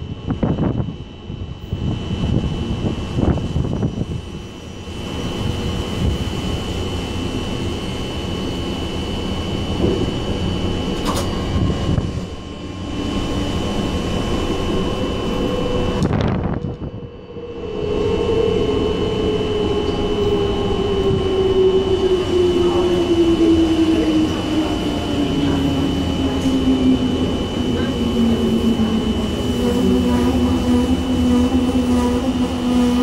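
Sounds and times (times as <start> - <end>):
train rumbling over track: 0.0 - 33.0.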